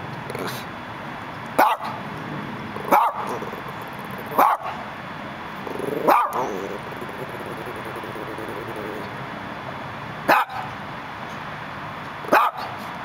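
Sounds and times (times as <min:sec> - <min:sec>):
dog barking: 0:01.6 - 0:02.0, 0:02.8 - 0:04.9, 0:05.7 - 0:09.0, 0:10.3 - 0:10.7, 0:12.3 - 0:12.8.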